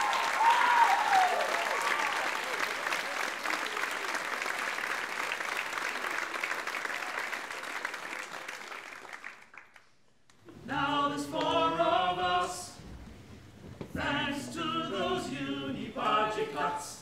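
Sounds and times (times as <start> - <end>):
audience applause: 0.0 - 9.9
group singing a cappella: 10.5 - 12.9, 13.8 - 17.0.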